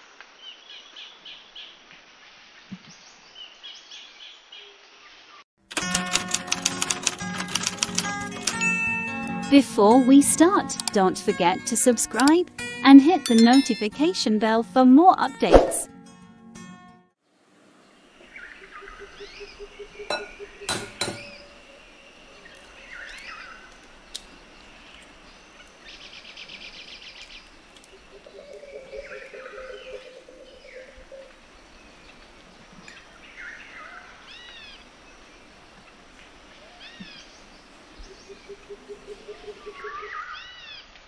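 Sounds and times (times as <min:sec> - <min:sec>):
small birds chirping: 0:18.2 - 0:40.9.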